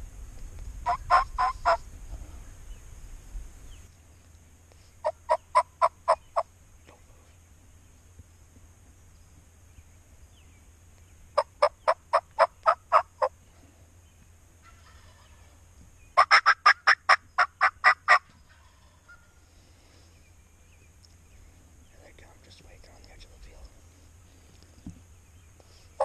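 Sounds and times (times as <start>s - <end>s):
turkey yelps: 0.9s - 1.8s, 11.4s - 13.3s, 16.2s - 19.3s.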